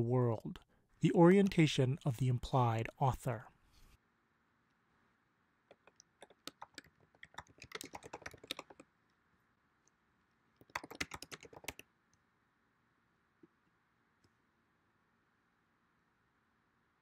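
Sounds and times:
typing on computer keyboard: 5.7 - 8.9, 10.6 - 11.8.

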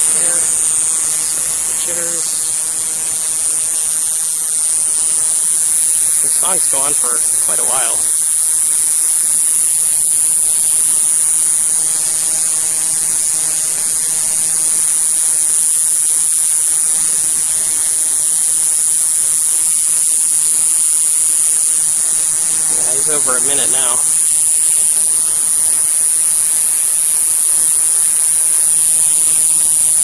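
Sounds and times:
cicada buzzing: 0.0 - 30.0.

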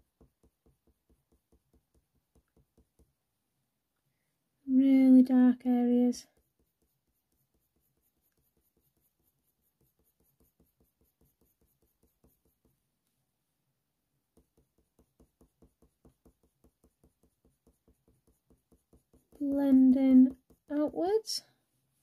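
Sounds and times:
pencil scratching on paper: 6.2 - 12.8, 14.4 - 21.0.

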